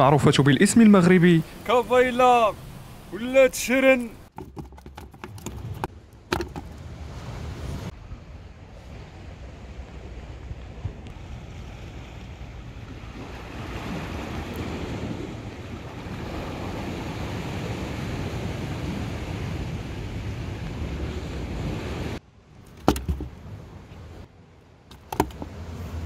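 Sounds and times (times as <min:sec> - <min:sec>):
sea surf: 0:00.0 - 0:04.3, 0:06.4 - 0:22.2
sharp knocks: 0:04.3 - 0:06.8, 0:22.7 - 0:23.4, 0:24.9 - 0:25.5.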